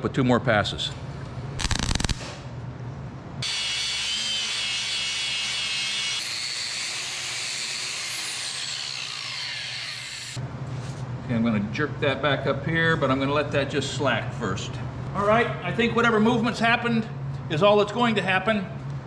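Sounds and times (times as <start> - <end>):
angle grinder grinding steel: 3.4 - 10.4.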